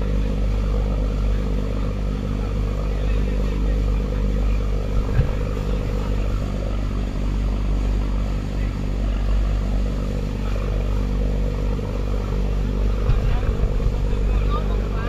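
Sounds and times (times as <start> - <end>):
motorboat engine running: 0.0 - 15.0
brief thump: 5.0 - 5.7.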